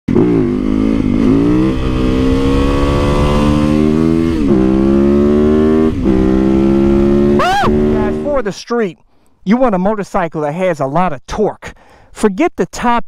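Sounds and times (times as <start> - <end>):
motorcycle engine accelerating: 0.1 - 8.4.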